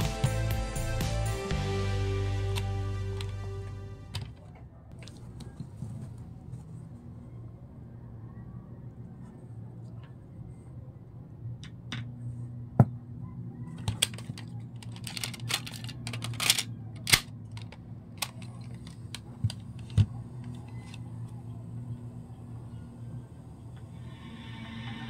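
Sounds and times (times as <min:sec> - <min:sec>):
low steady hum: 0:01.6 - 0:25.0
hands handling electronics clicking: 0:13.7 - 0:21.4.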